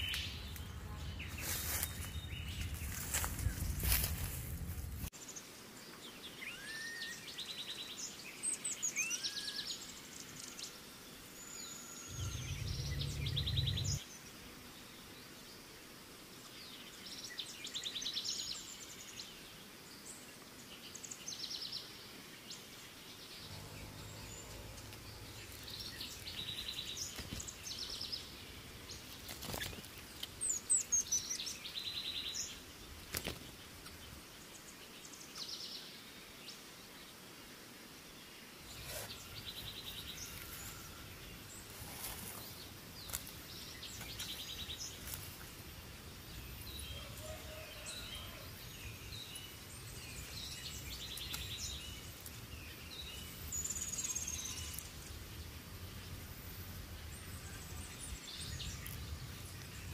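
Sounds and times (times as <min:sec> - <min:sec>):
low rumble: 0:00.2 - 0:05.1, 0:12.1 - 0:14.0, 0:23.5 - 0:26.6
birds calling: 0:12.1 - 0:14.0.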